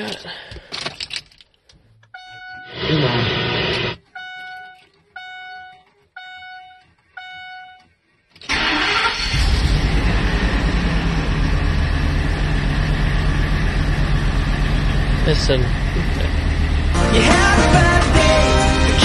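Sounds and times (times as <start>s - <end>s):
dashboard warning chime: 2.1s - 2.9s, 4.1s - 7.9s
engine cranking and idling: 2.8s - 16.9s.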